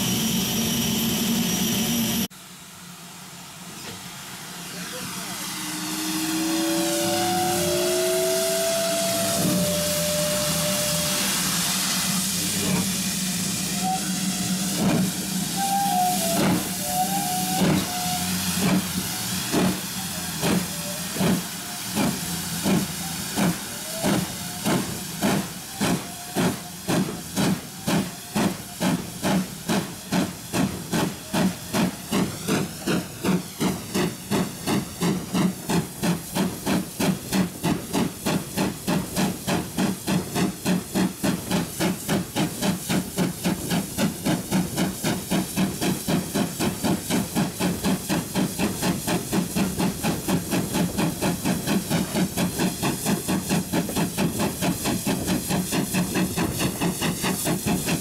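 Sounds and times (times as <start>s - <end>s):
steam hissing: 0.0s - 58.0s
steam locomotive chuffing: 0.0s - 58.0s
short high squeaks: 6.2s - 11.5s.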